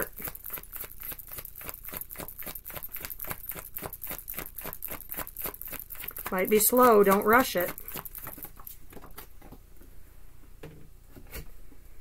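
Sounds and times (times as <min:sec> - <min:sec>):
cards being shuffled: 0:00.0 - 0:09.6.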